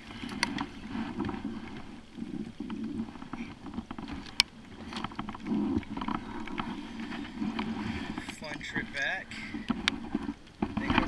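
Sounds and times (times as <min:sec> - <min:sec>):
rain on water and kayak: 0:00.0 - 0:11.0.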